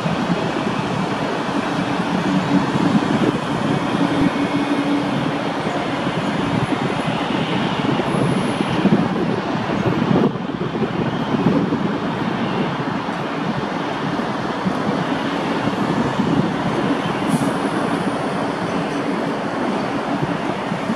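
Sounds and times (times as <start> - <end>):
jet engines at taxi thrust: 0.0 - 20.9.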